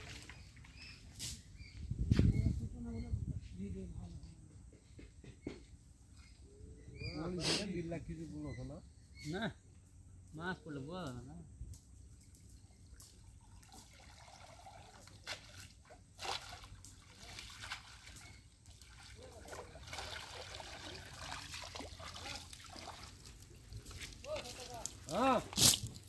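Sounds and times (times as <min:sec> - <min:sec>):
small water splashes: 0:00.0 - 0:01.0, 0:12.2 - 0:26.0
patter of water: 0:00.0 - 0:01.8, 0:05.2 - 0:07.1, 0:11.6 - 0:26.0
water dripping off a net: 0:11.6 - 0:26.0.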